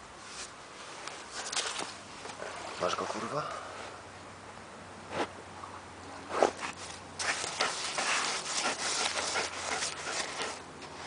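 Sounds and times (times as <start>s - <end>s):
dog scratching in sand: 6.4s - 10.7s.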